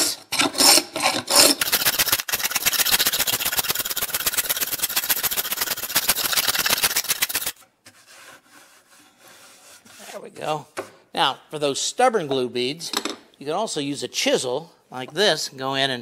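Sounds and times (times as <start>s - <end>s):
paint scraper rasping on wood: 0.5s - 10.2s.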